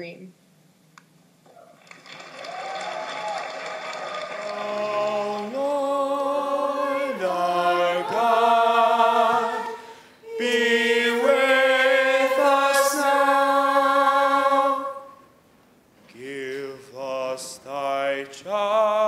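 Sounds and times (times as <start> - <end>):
unaccompanied voices singing: 4.4 - 15.3, 16.1 - 19.0.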